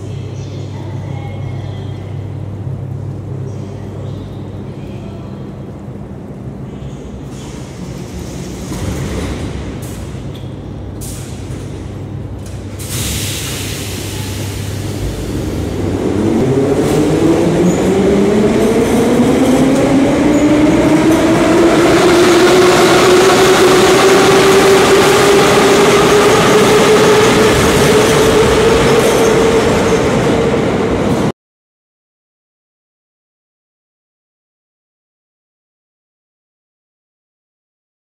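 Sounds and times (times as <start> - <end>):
low train hum: 0.0 - 31.3
train wheels rumbling: 4.1 - 31.3.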